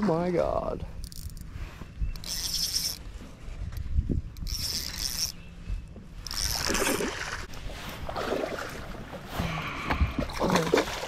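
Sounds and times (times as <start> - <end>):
water splashing: 6.6 - 9.2, 10.2 - 11.0.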